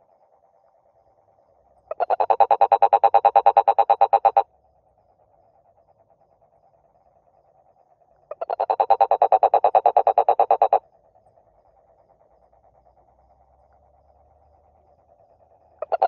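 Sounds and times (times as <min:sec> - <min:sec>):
faint steady trilling: 0:00.0 - 0:16.0
frog croaking: 0:01.8 - 0:04.5, 0:08.2 - 0:10.8, 0:15.8 - 0:16.0.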